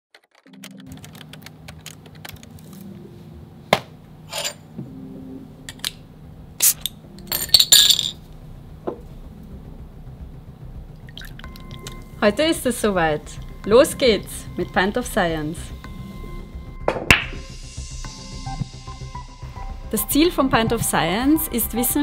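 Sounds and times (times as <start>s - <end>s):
glass bottle and glass clinking: 6.6s - 8.2s.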